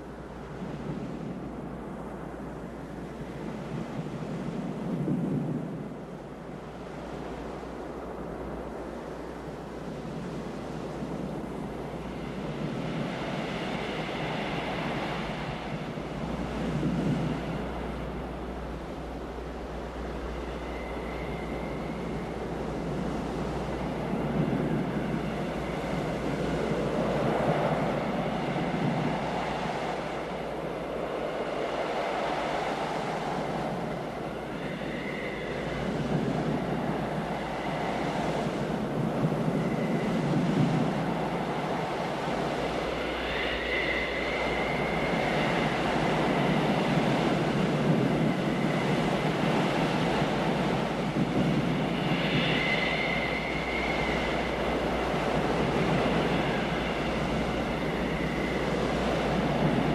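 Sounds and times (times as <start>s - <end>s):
high sliding whistling tone: 42.1s - 47.1s, 51.6s - 59.9s.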